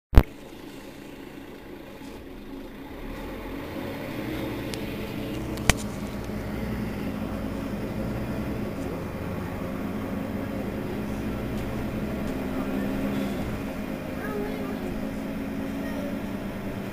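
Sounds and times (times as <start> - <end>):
bus engine idling: 0.1 - 16.9.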